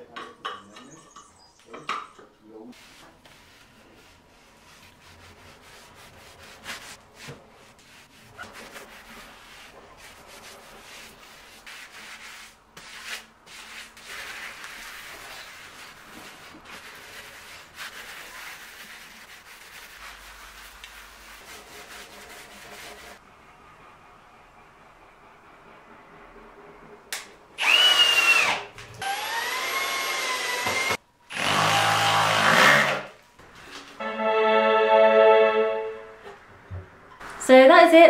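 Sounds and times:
gritty scrubbing on tiles: 0:02.7 - 0:23.2.

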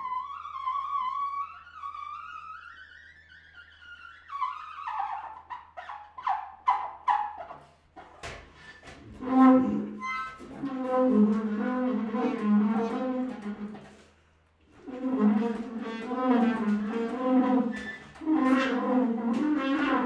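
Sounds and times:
low brass wavering notes: 0:09.1 - 0:14.0, 0:14.8 - 0:20.0.

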